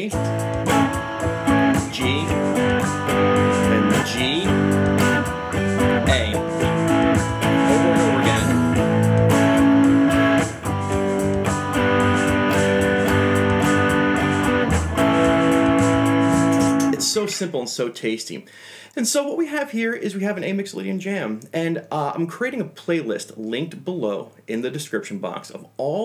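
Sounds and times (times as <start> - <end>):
blues-rock backing track: 0.0 - 17.0
electric guitar with bent notes: 0.0 - 17.4.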